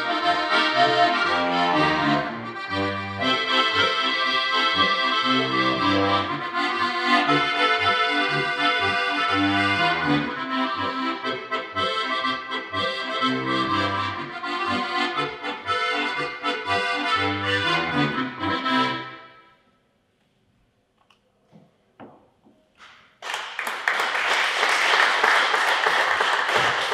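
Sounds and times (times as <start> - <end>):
button accordion playing: 0.0 - 19.6.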